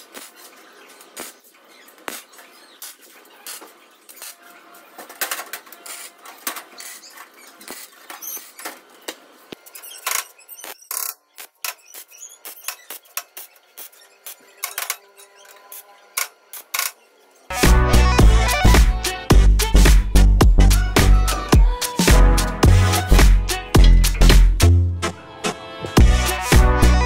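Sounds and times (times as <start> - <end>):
welder crackling and spitting: 0.0 - 4.4.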